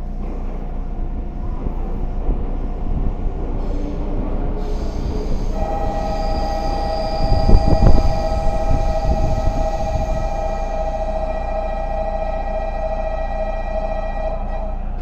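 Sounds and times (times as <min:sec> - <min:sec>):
low rumble of trains: 0:00.0 - 0:15.0
two-pitched electronic tone: 0:05.6 - 0:14.7.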